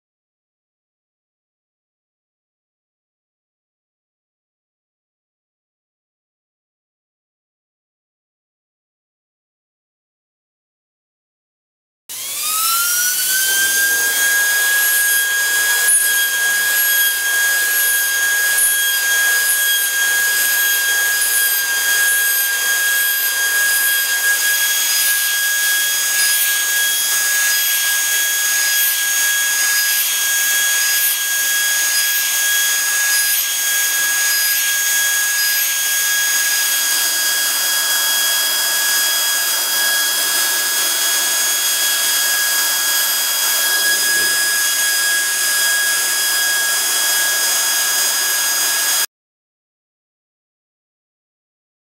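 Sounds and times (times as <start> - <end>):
high-pitched grinder whine: 12.1 - 49.1.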